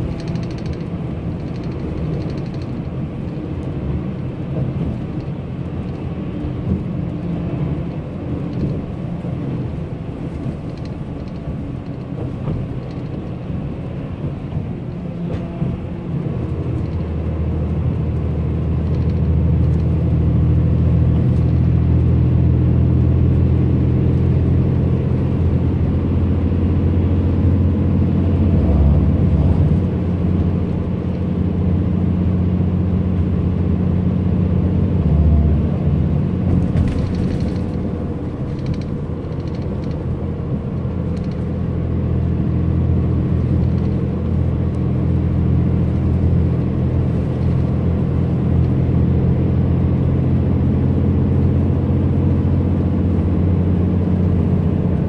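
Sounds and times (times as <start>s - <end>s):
faint rattles: 0.0s - 3.4s, 36.5s - 41.7s
bus engine and tyres rumbling: 0.0s - 55.0s.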